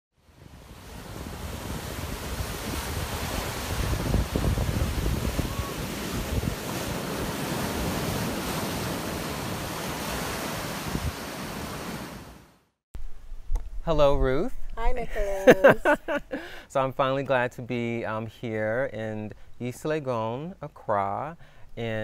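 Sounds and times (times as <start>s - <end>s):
ocean surf breaking on beach: 0.2s - 12.6s
wind buffeting microphone: 0.6s - 9.3s, 10.0s - 11.3s.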